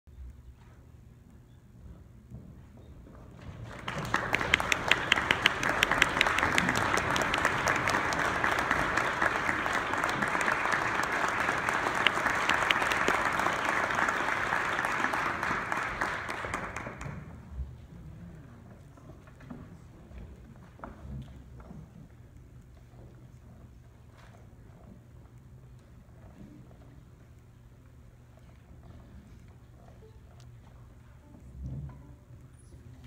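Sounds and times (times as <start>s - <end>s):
audience applauding: 3.6s - 17.5s.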